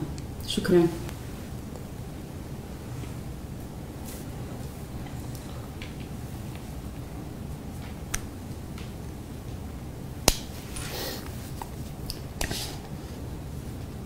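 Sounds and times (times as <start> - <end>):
low room hum: 0.0 - 14.0
soft rustle: 2.8 - 7.0.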